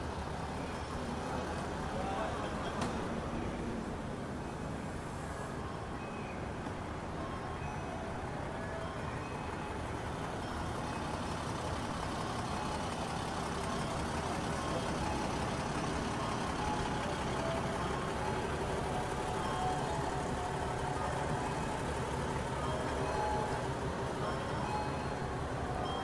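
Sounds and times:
large vehicle engine idling: 0:00.0 - 0:06.0, 0:06.8 - 0:26.0
street traffic noise: 0:00.0 - 0:26.0.

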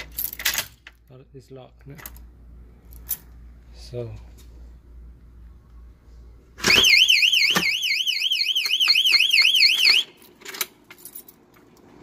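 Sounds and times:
electronic alarm warbling: 0:06.7 - 0:10.1.

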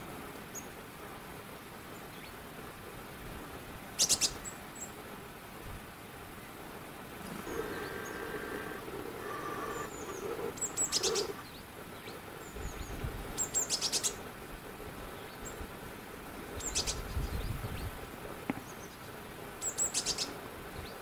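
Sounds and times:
steady low hum: 0:06.8 - 0:11.8
birds chirping and trilling: 0:07.2 - 0:14.2, 0:16.6 - 0:17.9, 0:19.6 - 0:21.0.

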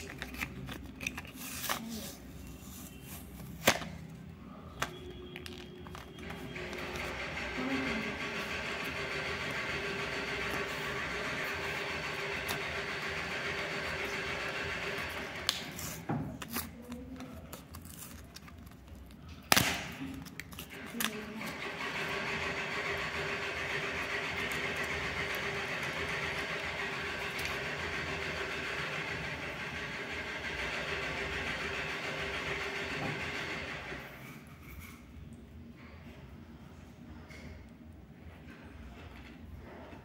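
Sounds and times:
blister pack being torn open: 0:15.4 - 0:21.2.

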